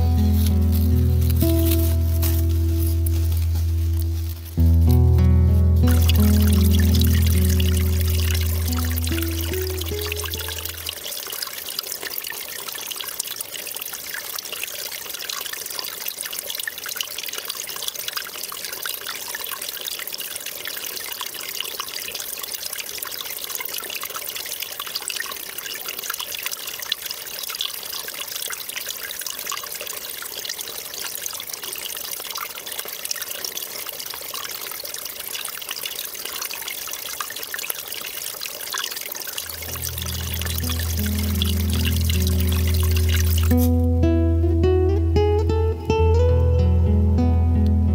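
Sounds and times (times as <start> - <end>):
stream babbling over stones: 5.8 - 43.9.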